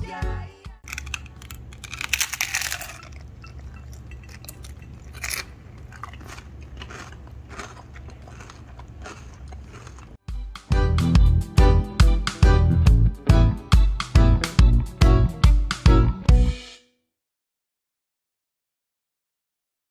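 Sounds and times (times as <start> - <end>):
chewing with crunches: 0.8 - 10.2
crunching taco shell: 0.8 - 10.2.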